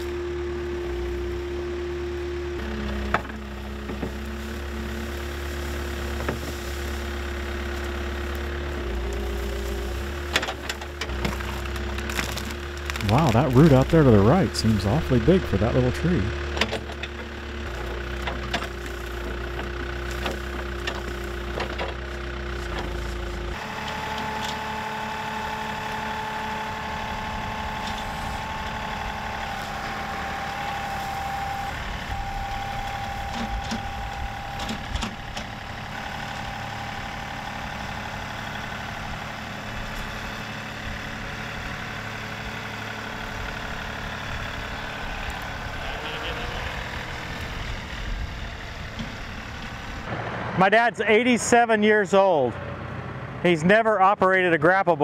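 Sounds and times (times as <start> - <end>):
steady whine: 0.0 - 40.1
backhoe diesel engine running: 0.0 - 55.0
tractor diesel engine under load: 0.0 - 55.0
wood cracking: 3.1 - 15.1.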